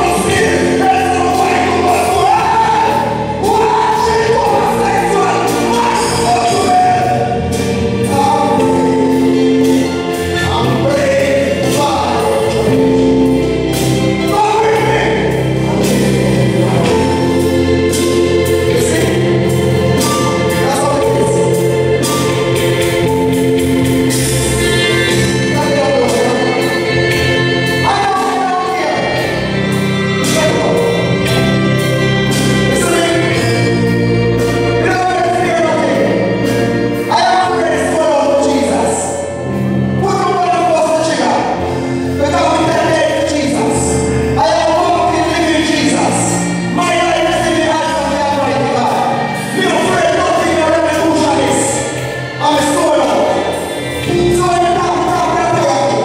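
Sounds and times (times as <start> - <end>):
choir singing: 0.0 - 35.1
amplified accompaniment with beat: 0.0 - 56.0.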